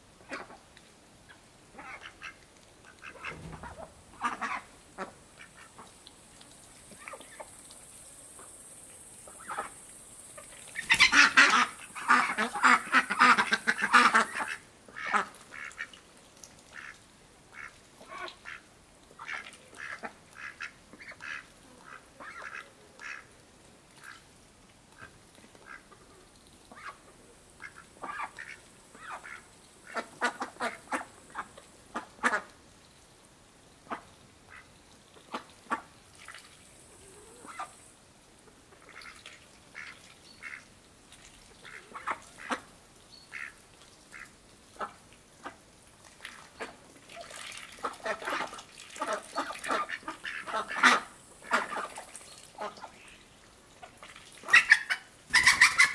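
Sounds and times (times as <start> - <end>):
ducks quacking: 1.7 - 5.9, 10.8 - 15.9, 19.2 - 23.3, 25.6 - 27.0, 27.6 - 32.5, 37.1 - 37.8, 38.7 - 40.7, 41.6 - 42.7, 43.3 - 45.6, 47.7 - 53.2, 54.4 - 55.9.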